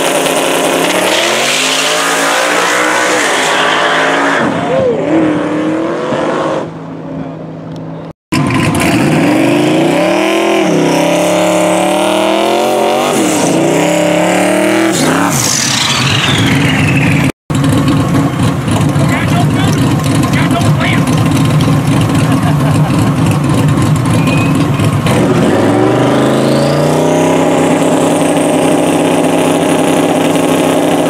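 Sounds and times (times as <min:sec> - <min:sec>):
car engine revving: 0:08.3 - 0:31.0
turbo whistle: 0:15.6 - 0:17.3, 0:24.1 - 0:24.9.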